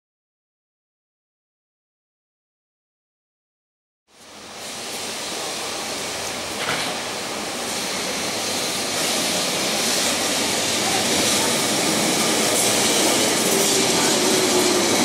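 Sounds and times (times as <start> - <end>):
tram wheels rolling on rails: 4.2 - 15.0.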